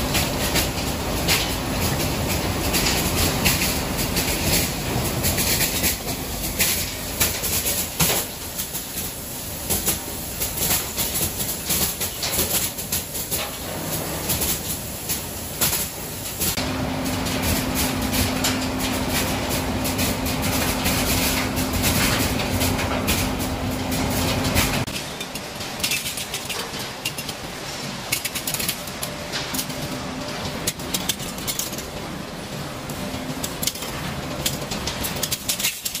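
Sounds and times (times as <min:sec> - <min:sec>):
machinery hum and low drone: 0:00.0 - 0:36.0
rapid clicking of metal pieces: 0:24.8 - 0:29.9, 0:30.6 - 0:32.0, 0:33.4 - 0:36.0.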